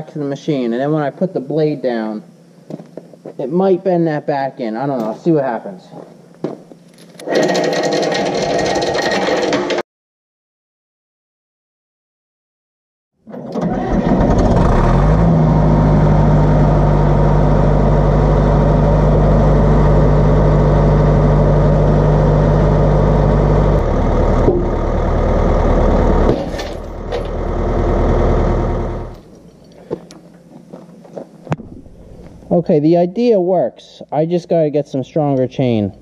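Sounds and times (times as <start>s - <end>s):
bulldozer diesel engine running hard: 13.6s - 29.2s.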